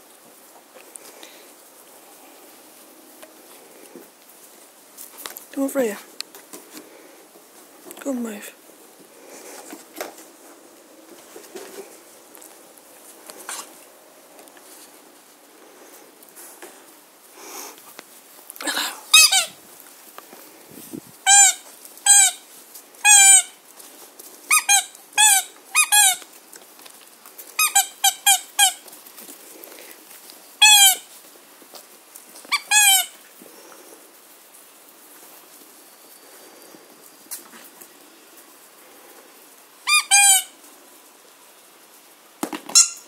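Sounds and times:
squeaky dog toy squeaking: 0:19.1 - 0:19.6, 0:21.2 - 0:22.4, 0:23.0 - 0:23.6, 0:24.5 - 0:26.2, 0:27.6 - 0:28.8, 0:30.6 - 0:31.1, 0:32.5 - 0:33.2, 0:39.9 - 0:40.6, 0:42.7 - 0:43.0.

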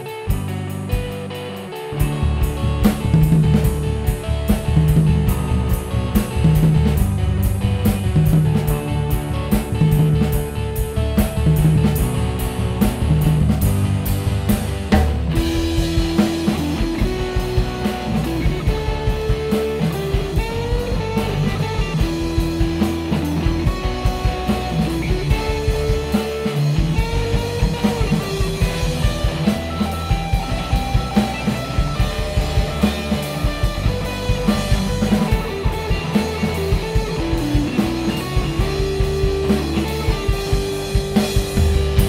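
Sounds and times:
bass: 0:00.0 - 0:42.0
drum kit beat: 0:00.0 - 0:42.0
electric guitar lead line: 0:00.0 - 0:42.0.

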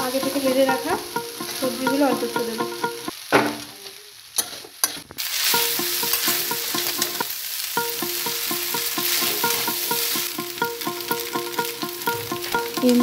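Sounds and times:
quiet repeating tune: 0:00.0 - 0:03.1, 0:05.5 - 0:13.0
food sizzling in a pan: 0:00.0 - 0:13.0.

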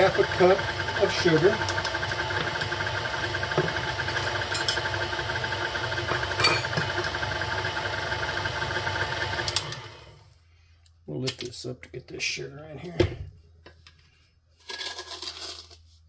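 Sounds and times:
stand mixer motor humming: 0:00.0 - 0:10.2.

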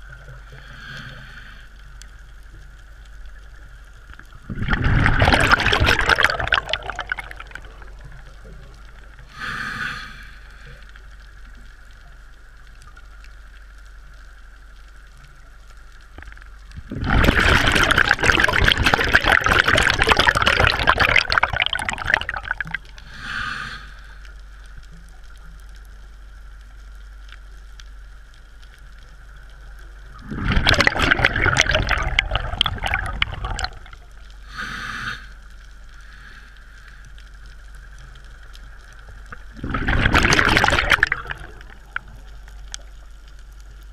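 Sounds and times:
exhaled bubbles rushing: 0:04.4 - 0:09.2, 0:16.7 - 0:23.1, 0:30.1 - 0:34.2, 0:39.3 - 0:43.0
regulator hissing inhalations: 0:09.3 - 0:10.8, 0:23.0 - 0:24.2, 0:34.4 - 0:35.4.

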